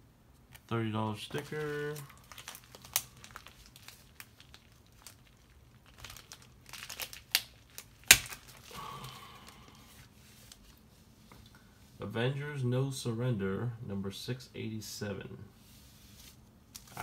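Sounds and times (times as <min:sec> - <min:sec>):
plastic sleeve crinkling: 0:00.4 - 0:10.9, 0:15.8 - 0:17.0.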